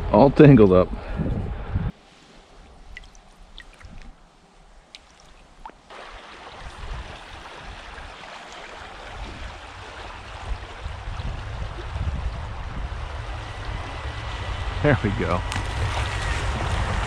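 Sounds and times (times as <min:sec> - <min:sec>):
wind rumble on microphone: 0:00.0 - 0:02.0, 0:06.5 - 0:08.2, 0:08.8 - 0:17.0
stream running over stones: 0:02.5 - 0:12.0, 0:15.5 - 0:17.0.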